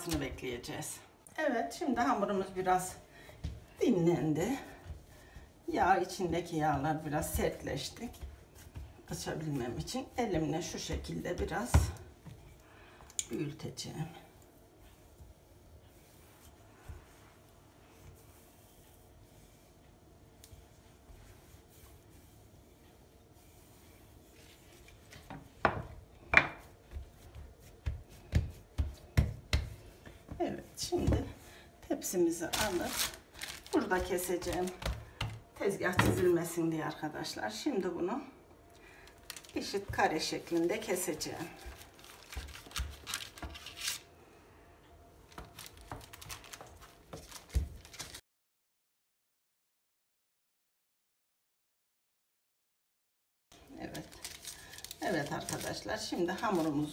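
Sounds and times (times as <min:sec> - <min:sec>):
rolling pin rubbing over dough: 0:02.0 - 0:12.5, 0:13.7 - 0:36.6, 0:39.5 - 0:44.0
hands slapping dough: 0:23.6 - 0:31.4, 0:32.5 - 0:36.4, 0:39.3 - 0:44.0
paper rustling: 0:32.4 - 0:35.0, 0:39.2 - 0:44.0, 0:45.3 - 0:48.2, 0:53.9 - 0:56.9.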